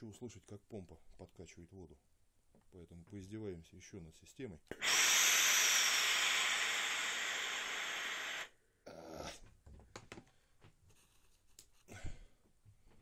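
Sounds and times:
steam iron hissing: 0:04.8 - 0:08.5.

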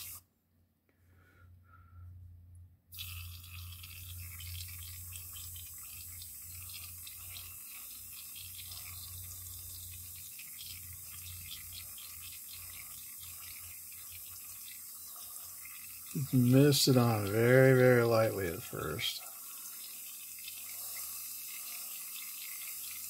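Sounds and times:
airbrush hissing: 0:00.0 - 0:00.2.

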